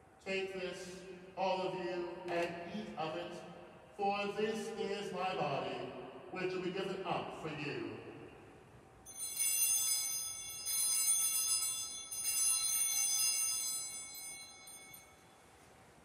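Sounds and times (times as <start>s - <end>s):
altar bells ringing: 9.0s - 15.5s.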